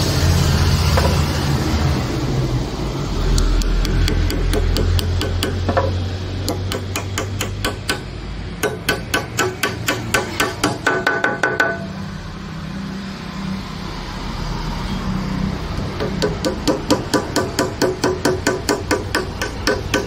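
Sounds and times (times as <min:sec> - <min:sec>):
hammer tapping a nail: 0:03.6 - 0:11.9, 0:16.0 - 0:20.0.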